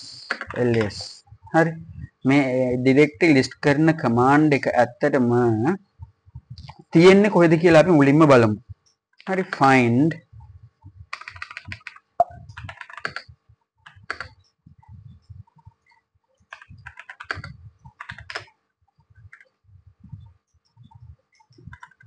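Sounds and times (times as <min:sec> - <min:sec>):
typing on computer keyboard: 0:00.2 - 0:01.1, 0:11.1 - 0:14.4, 0:16.5 - 0:18.6, 0:19.3 - 0:19.6, 0:21.4 - 0:22.0.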